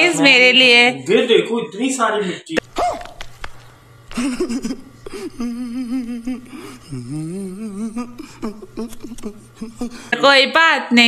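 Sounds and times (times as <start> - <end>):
faint low hum: 0.0 - 11.0
man whimpering: 4.2 - 10.2
man gasping: 5.0 - 10.2.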